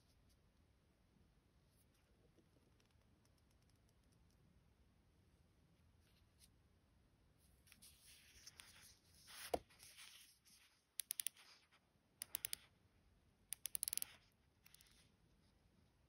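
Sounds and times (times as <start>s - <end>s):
watch bezel clicking: 11.0s - 11.4s, 12.2s - 12.7s, 13.5s - 14.9s.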